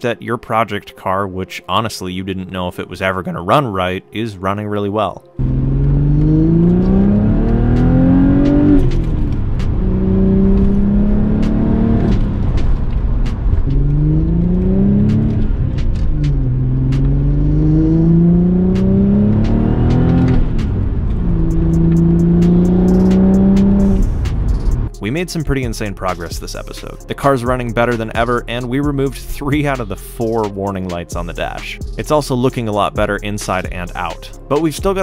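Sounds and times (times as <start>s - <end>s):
car engine accelerating: 5.4s - 25.0s.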